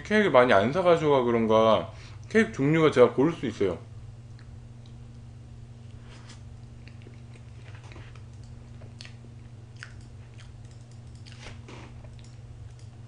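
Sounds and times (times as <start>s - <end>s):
steady low hum: 0.0s - 13.0s
person chewing with wet mouth clicks: 6.7s - 12.9s.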